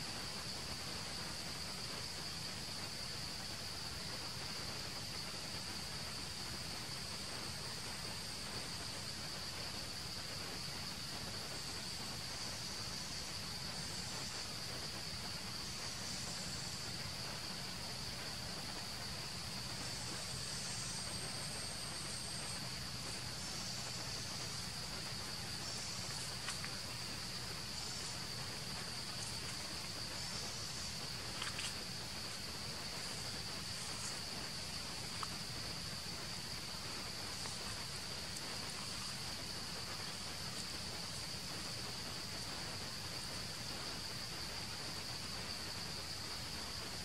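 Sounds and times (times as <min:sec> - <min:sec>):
high-pitched insect drone: 0:00.0 - 0:47.0.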